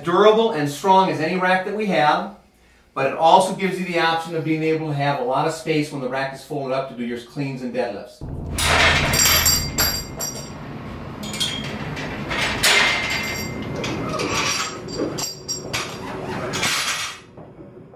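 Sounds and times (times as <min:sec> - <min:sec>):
metallic clanks and clinks: 0:08.2 - 0:10.6, 0:11.2 - 0:16.0.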